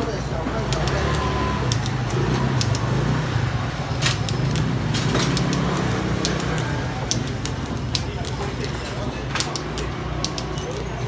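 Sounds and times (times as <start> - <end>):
sharp clicks and knocks: 0.6 - 3.1, 3.8 - 11.0.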